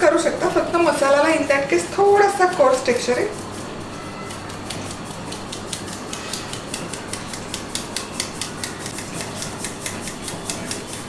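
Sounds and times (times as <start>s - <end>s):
spice powder hissing through mesh: 0.2s - 11.0s
sieve tapping on metal plate: 4.3s - 11.0s.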